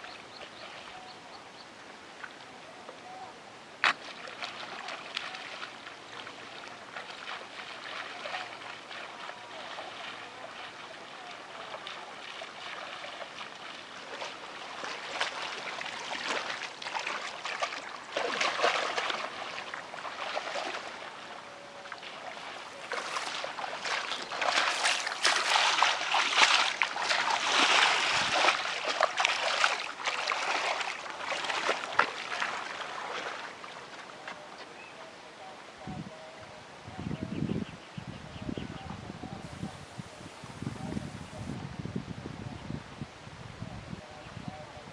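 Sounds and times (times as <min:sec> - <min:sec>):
splashing in muddy water: 0:03.8 - 0:34.6.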